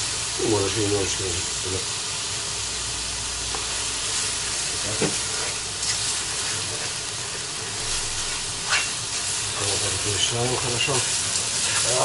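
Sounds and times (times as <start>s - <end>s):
fish and onions sizzling in oil: 0.0s - 12.0s
spatula stirring: 4.2s - 12.0s.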